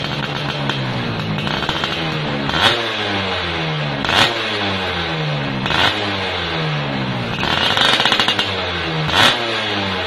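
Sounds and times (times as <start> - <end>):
loud exhaust crack: 0.0 - 10.0
moped engine revving: 0.0 - 10.0.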